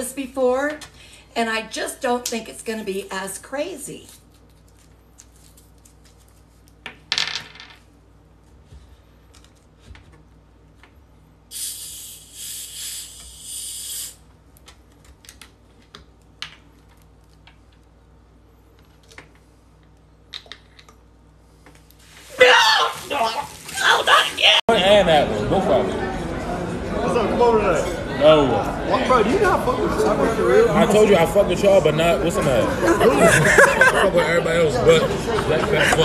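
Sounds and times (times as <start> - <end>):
carbonation hissing out: 11.5 - 14.2.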